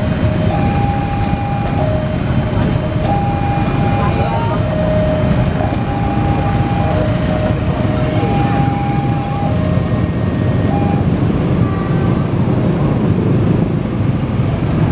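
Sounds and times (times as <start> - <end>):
two-tone crossing signal: 0.0 - 11.8
motorcycle engines running: 0.0 - 14.9
train rumbling past: 0.0 - 14.9.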